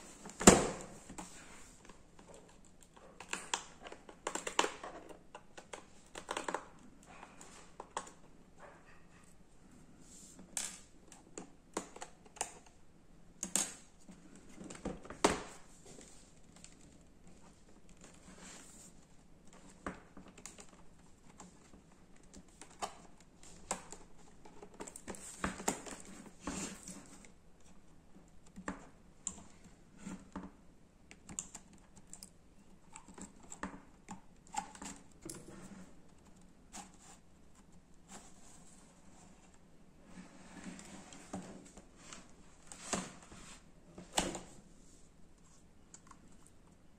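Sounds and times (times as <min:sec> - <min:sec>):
plastic clicks and knocks on laptop: 0:01.8 - 0:06.9.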